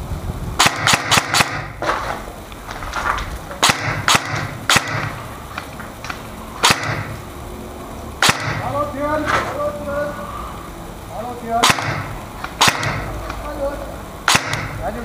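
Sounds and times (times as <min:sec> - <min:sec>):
airsoft gun shots: 0:00.6 - 0:02.0, 0:03.6 - 0:05.2, 0:06.6 - 0:07.2, 0:08.2 - 0:08.8, 0:11.6 - 0:13.2, 0:14.2 - 0:14.8.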